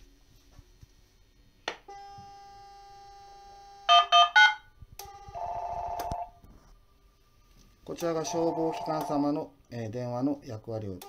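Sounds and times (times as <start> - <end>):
dtmf dialing tones: 3.9 - 6.3, 8.2 - 9.2
dial tone: 5.2 - 6.3, 8.3 - 9.1
warbling telephone ring: 8.2 - 9.2.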